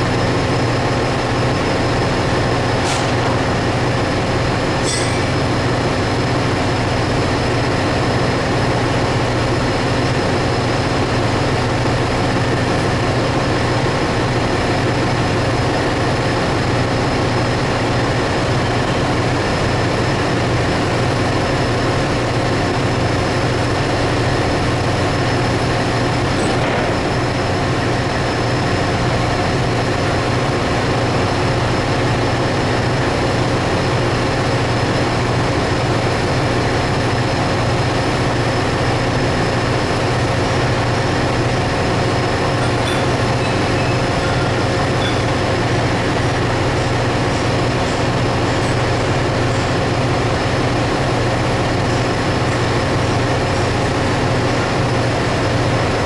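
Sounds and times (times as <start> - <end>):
machinery whining tones: 0.0 - 7.9, 37.5 - 56.0
engine room machinery drone: 0.0 - 56.0.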